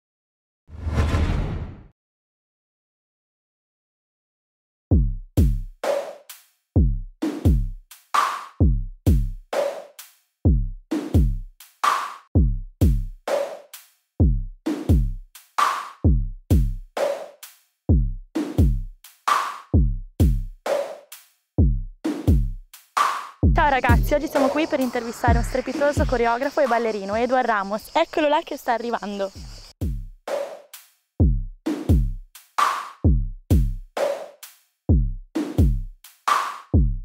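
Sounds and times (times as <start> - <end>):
deep kick drums: 4.9 - 5.8, 6.8 - 7.8, 8.6 - 9.4, 10.5 - 11.5, 12.4 - 13.2, 14.2 - 15.2, 16.0 - 16.8, 17.9 - 18.9, 19.8 - 20.5, 21.6 - 22.6, 23.4 - 24.2, 29.8 - 30.2, 31.2 - 32.2, 33.0 - 33.9, 34.9 - 35.9, 36.8 - 37.0
electronic drum-machine beat: 4.9 - 5.8, 6.8 - 9.8, 10.5 - 11.5, 12.4 - 13.5, 14.2 - 17.1, 17.9 - 20.7, 21.6 - 30.3, 31.2 - 34.1, 34.9 - 37.0
snare or clap hits: 8.2 - 8.6, 11.8 - 12.3, 15.6 - 16.0, 19.3 - 19.7, 23.0 - 23.4, 32.6 - 33.0, 36.3 - 36.8.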